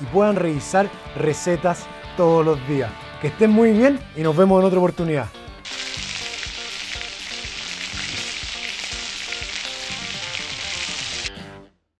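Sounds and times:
steak sizzling in oil: 0:05.6 - 0:11.4.

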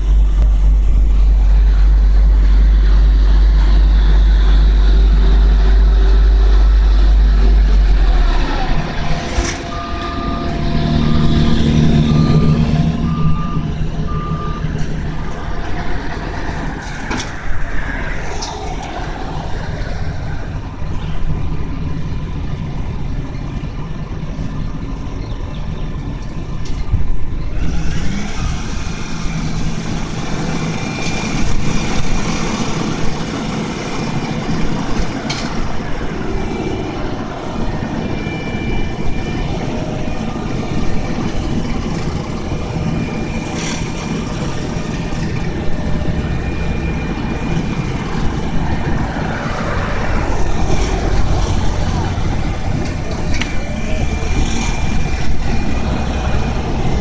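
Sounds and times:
heavy diesel engines running: 0:00.0 - 0:57.0.

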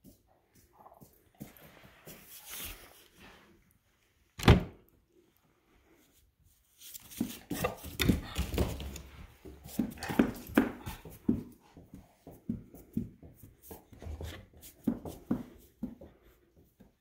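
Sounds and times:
dogs huffing and panting: 0:07.5 - 0:12.2.

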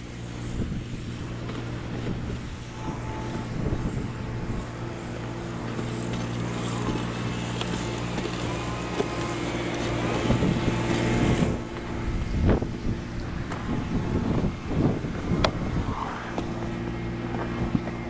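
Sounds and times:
spray hissing onto roof tiles: 0:00.0 - 0:11.9
low machine hum: 0:00.0 - 0:18.0.

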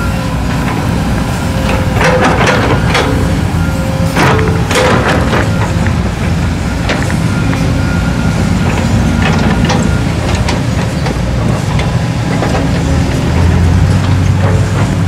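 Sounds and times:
diesel truck engines droning: 0:00.0 - 0:15.0
knocks and rattles: 0:01.6 - 0:03.5, 0:04.2 - 0:07.2, 0:08.6 - 0:15.0.

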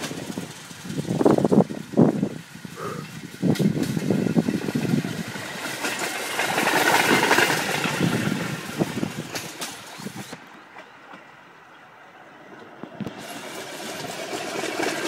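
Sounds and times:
steel wheels rattling on rails: 0:00.0 - 0:15.0.

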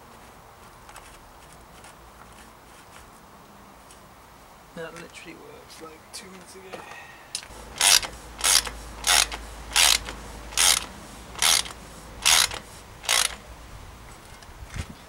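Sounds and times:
ratchet wrench clicking: 0:07.4 - 0:13.4.

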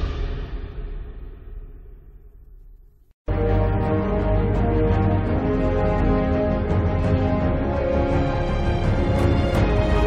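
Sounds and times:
background music: 0:03.3 - 0:10.0.

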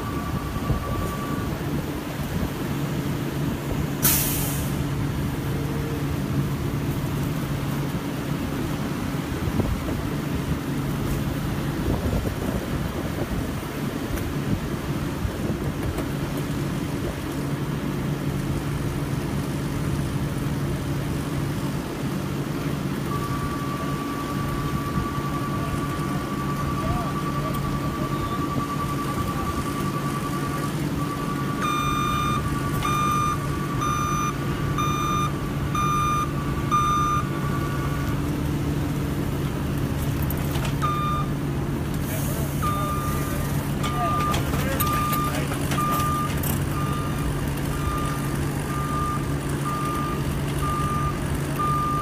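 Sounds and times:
sharp hiss of air: 0:04.0 - 0:04.9.

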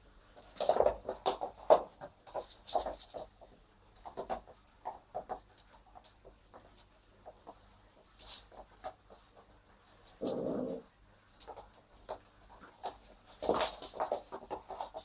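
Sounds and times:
puppy growling: 0:10.2 - 0:10.9.

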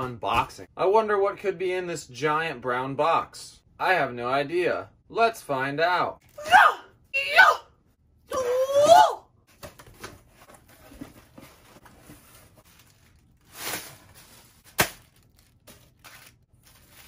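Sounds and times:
plastic packing crinkling: 0:11.6 - 0:17.0.

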